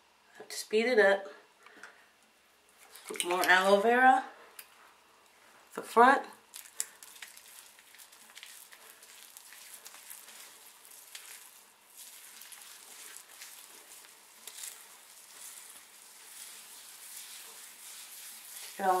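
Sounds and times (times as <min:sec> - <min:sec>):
fingers rubbing wet hair: 0:06.5 - 0:19.0.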